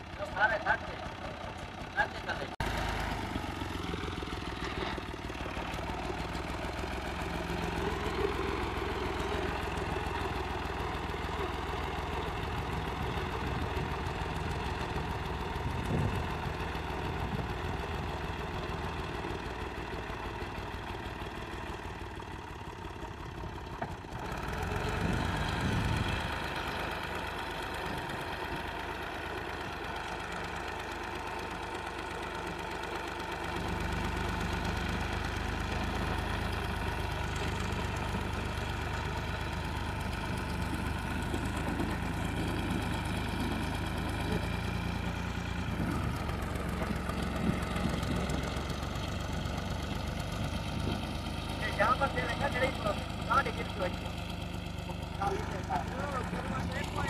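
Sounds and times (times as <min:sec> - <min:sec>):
tractor diesel engine idling: 0:00.0 - 0:57.0.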